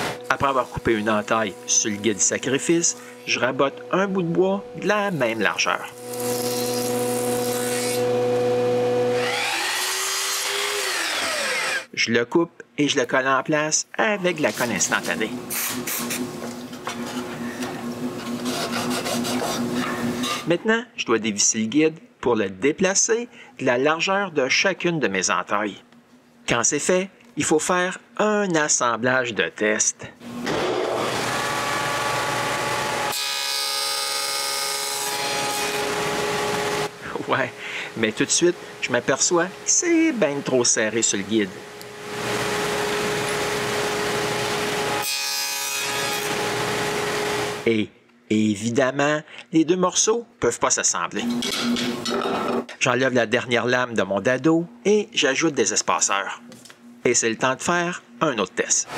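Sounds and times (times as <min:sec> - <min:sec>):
table saw cutting wood: 0:00.0 - 0:11.9, 0:14.5 - 0:20.5, 0:30.2 - 0:47.7
thickness planer humming: 0:00.0 - 0:11.9, 0:14.4 - 0:20.5, 0:30.2 - 0:47.6
miter saw crosscutting wood: 0:05.2 - 0:11.9, 0:30.4 - 0:37.0
planer cutting wood hiss: 0:09.1 - 0:11.9, 0:14.6 - 0:16.3, 0:30.8 - 0:38.9.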